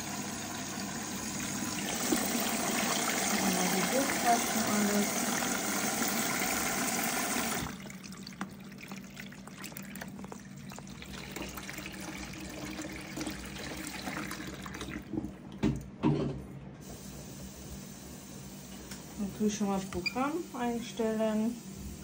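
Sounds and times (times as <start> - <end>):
water gushing into washing machine: 0.0 - 16.0
laundry sloshing in drum: 7.6 - 15.8.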